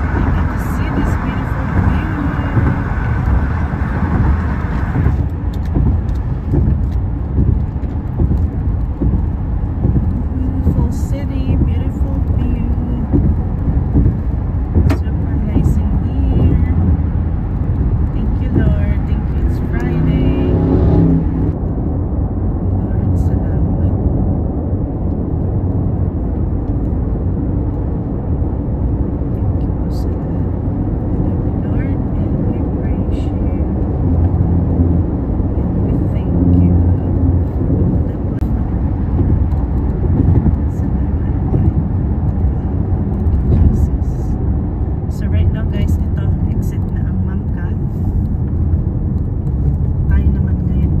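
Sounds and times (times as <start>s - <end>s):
car road and engine rumble: 0.0s - 51.0s.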